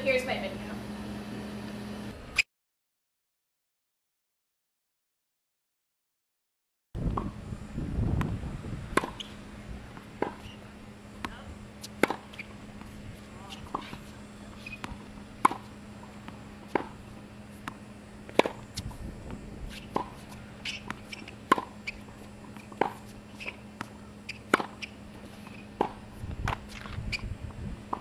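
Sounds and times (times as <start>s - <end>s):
steady low hum: 0.0s - 2.4s, 7.0s - 28.0s
tennis ball bounces: 8.2s - 27.2s
tennis racket strikes: 8.9s - 9.4s, 10.0s - 10.6s, 11.2s - 19.0s, 19.7s - 27.0s
shoe squeaks: 9.0s - 9.4s, 10.4s - 10.6s, 11.8s - 15.0s, 19.7s - 25.7s, 26.6s - 27.3s.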